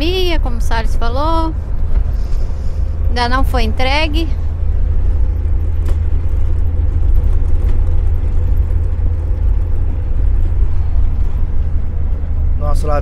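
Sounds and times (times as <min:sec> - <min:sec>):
van engine and road drone: 0:00.0 - 0:13.0.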